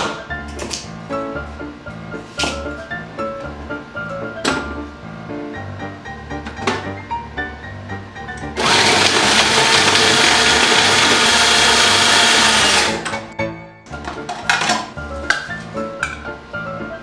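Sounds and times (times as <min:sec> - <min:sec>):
background music with steady beat: 0:00.0 - 0:17.0
food processor whirring: 0:08.6 - 0:13.3.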